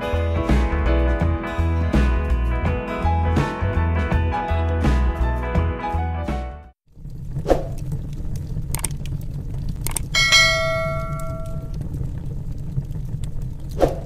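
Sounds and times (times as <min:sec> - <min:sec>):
log fire crackling and popping: 0:06.9 - 0:14.0
bell chime sound effect: 0:10.2 - 0:11.7.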